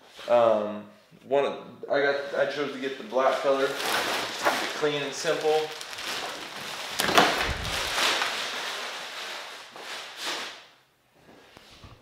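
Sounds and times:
plastic packaging crinkling: 3.2s - 10.5s.

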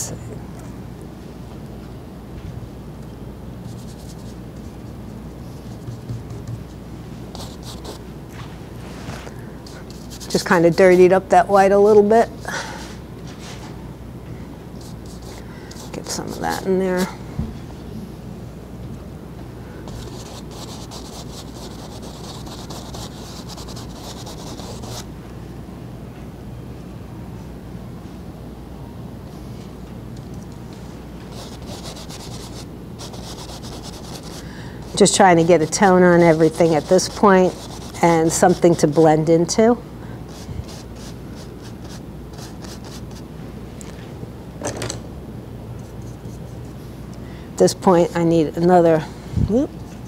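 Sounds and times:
low room hum: 0.0s - 50.0s
paintbrush scrubbing on canvas: 7.4s - 11.1s, 14.8s - 16.6s, 19.9s - 25.0s, 31.3s - 39.3s, 40.3s - 43.2s.

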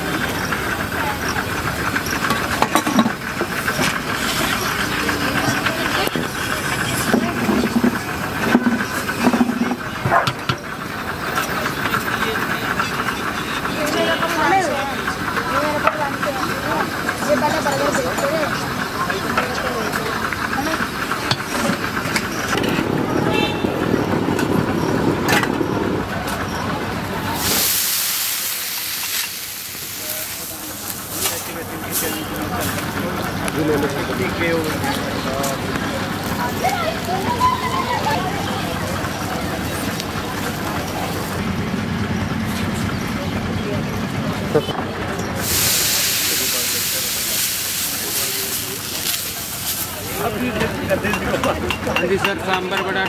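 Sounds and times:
background voices: 0.0s - 53.0s
steady hiss: 27.3s - 35.0s, 45.4s - 50.6s
steel ladle knocking and scraping: 51.1s - 53.0s.

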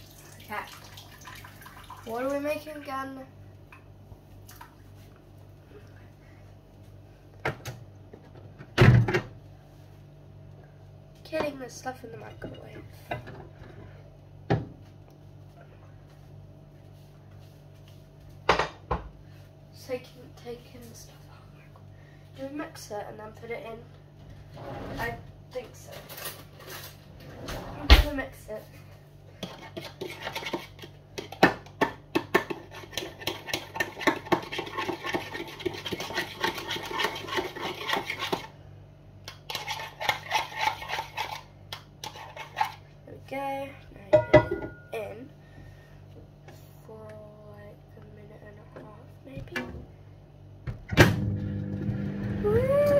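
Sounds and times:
low room hum: 0.0s - 52.9s
utensil stirring in a bowl: 29.4s - 38.6s, 39.2s - 43.0s.

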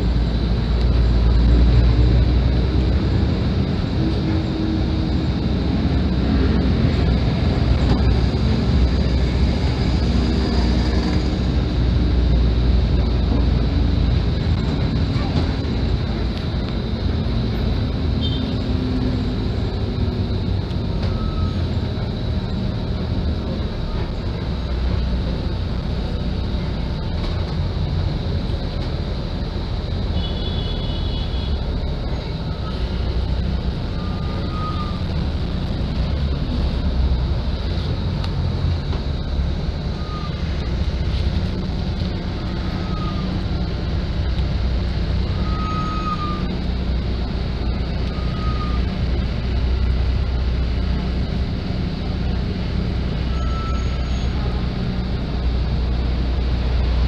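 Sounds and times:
bus diesel engine: 0.0s - 57.0s
road rumble: 0.0s - 57.0s
short high squeaks: 53.4s - 54.4s.

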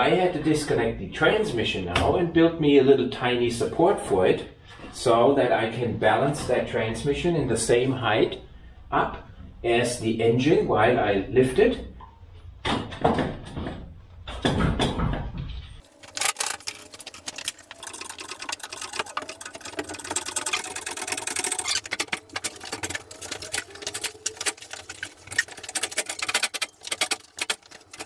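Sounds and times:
hand tools clicking and clattering: 15.8s - 28.0s.

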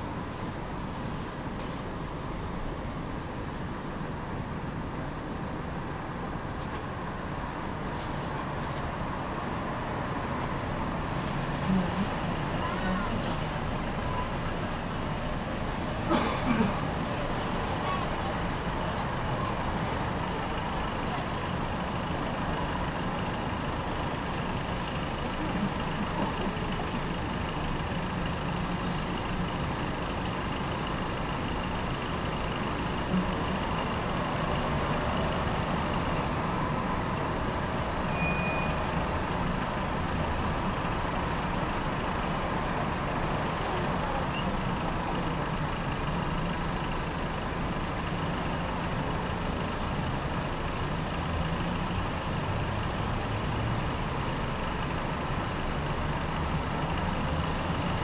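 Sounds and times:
tram rumbling on rails: 0.0s - 58.0s.

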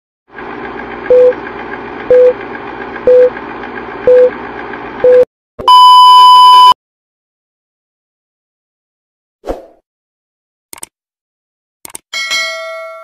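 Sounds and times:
projector whirring and clattering: 0.4s - 5.0s
short loud beeps: 5.1s - 6.8s.

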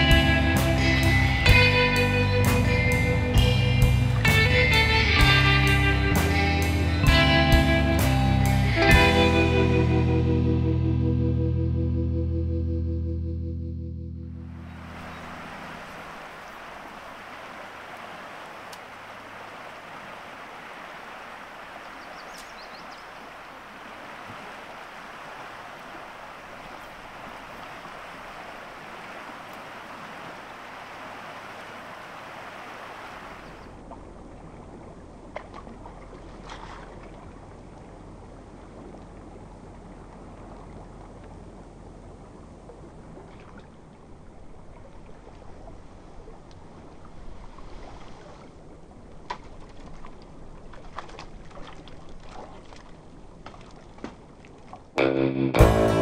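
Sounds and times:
river water rushing: 14.5s - 53.9s
faint clicks: 22.3s - 22.6s.

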